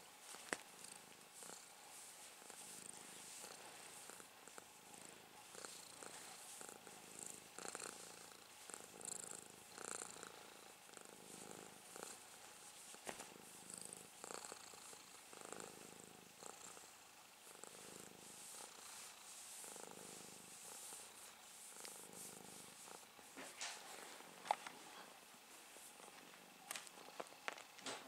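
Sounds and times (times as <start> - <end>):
cat purring: 0.0 - 25.2, 25.8 - 27.8
fingers rustling in fur: 18.2 - 24.7.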